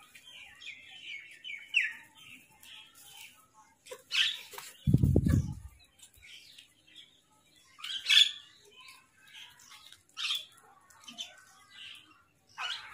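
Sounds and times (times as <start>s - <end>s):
harsh bird calls: 3.9s - 6.6s, 9.5s - 12.9s.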